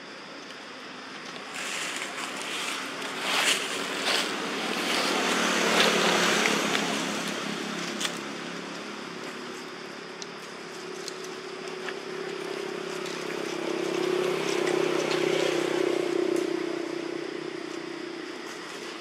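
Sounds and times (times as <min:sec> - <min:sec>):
low engine hum: 0:00.2 - 0:19.0
vehicle passing: 0:01.6 - 0:09.1, 0:12.3 - 0:18.3.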